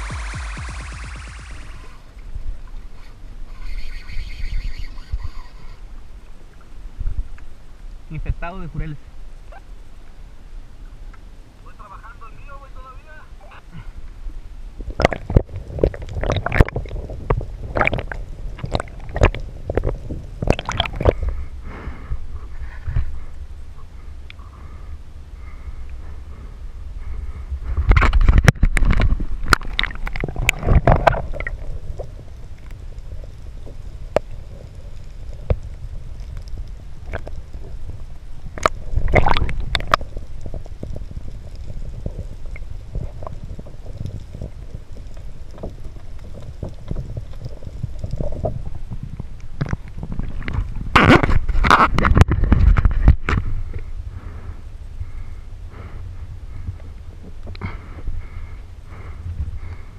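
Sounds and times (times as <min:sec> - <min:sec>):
water splashing and gurgling: 0:00.0 - 0:02.2, 0:14.8 - 0:21.5, 0:27.9 - 0:36.4, 0:37.0 - 0:53.2
muffled underwater rumble: 0:00.0 - 0:08.5, 0:13.8 - 0:59.9.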